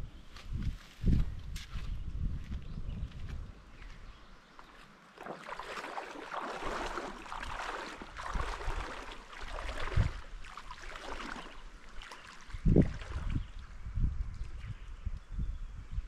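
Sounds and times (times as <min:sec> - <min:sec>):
waves lapping on rocks: 0:05.2 - 0:12.5.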